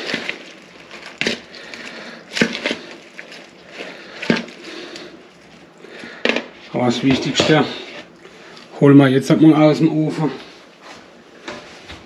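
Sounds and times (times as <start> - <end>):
salad rustling in a bowl: 0.0 - 8.7.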